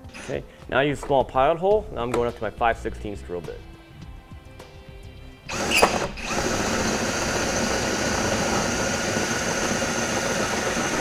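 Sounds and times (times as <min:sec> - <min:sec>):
cordless drill drilling metal: 0:05.5 - 0:11.0.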